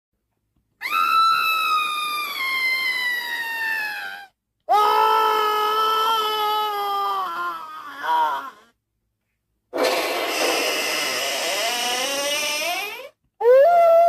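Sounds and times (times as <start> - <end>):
high scream-like cries: 9.9 - 13.2.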